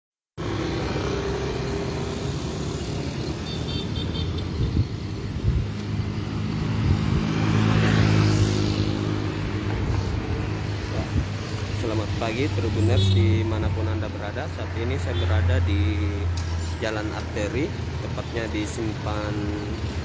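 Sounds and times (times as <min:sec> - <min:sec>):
motorcycle and car engines humming: 0:00.4 - 0:20.0
car driving close by: 0:06.0 - 0:11.2.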